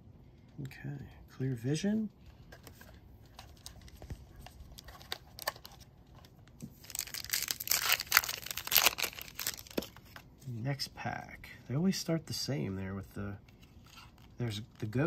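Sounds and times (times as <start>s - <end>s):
cards tapping and rustling: 2.4s - 10.2s
foil wrapper tearing: 6.8s - 9.9s.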